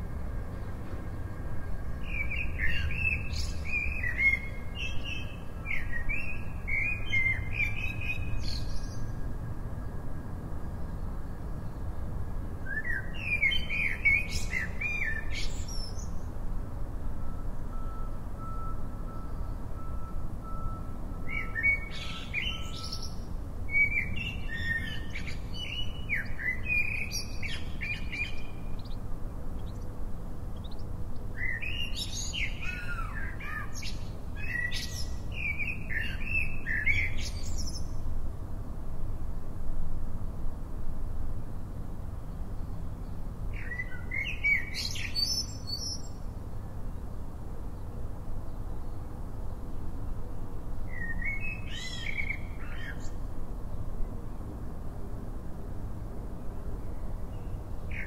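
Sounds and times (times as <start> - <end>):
bird chirping: 21.3 - 37.9
steady low rumble: 26.2 - 31.4.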